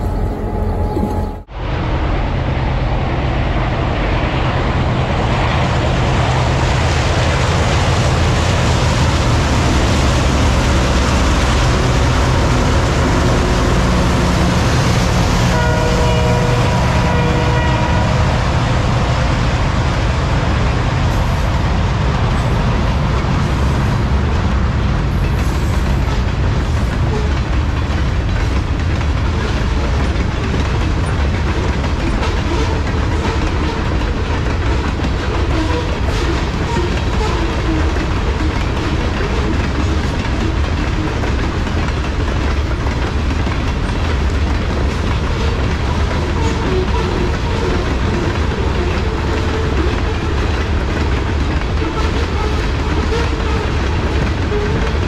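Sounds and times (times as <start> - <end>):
train horn: 0.0 - 1.5, 13.3 - 18.5, 32.1 - 34.1, 35.3 - 39.6, 45.3 - 50.4, 51.7 - 55.0
diesel locomotive engine drone: 0.0 - 55.0
freight cars clattering over rails: 4.8 - 55.0.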